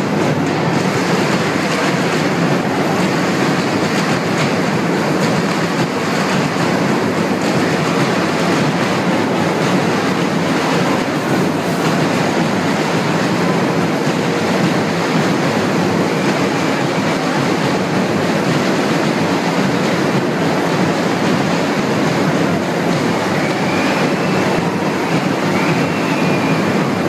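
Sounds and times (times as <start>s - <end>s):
distorted carnival band and crowd: 0.0s - 27.0s.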